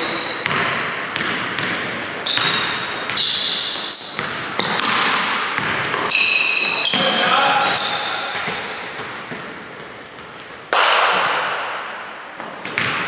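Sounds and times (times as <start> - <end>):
shoes squeaking on hardwood floor: 0.0 - 0.4, 2.2 - 5.0, 5.8 - 10.6
basketball bouncing: 0.0 - 7.0, 7.6 - 13.0.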